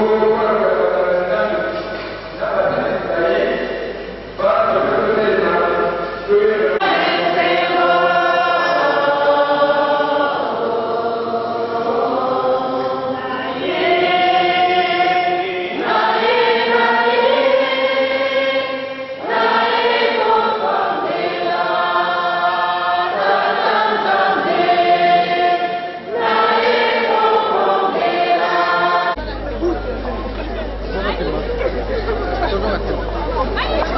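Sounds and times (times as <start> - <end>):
choir singing a hymn: 0.0 - 1.8, 4.4 - 29.4.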